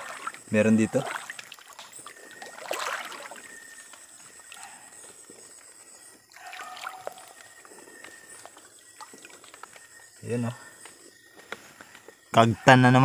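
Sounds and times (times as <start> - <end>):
river water splashing: 0.0 - 4.6, 6.3 - 9.8.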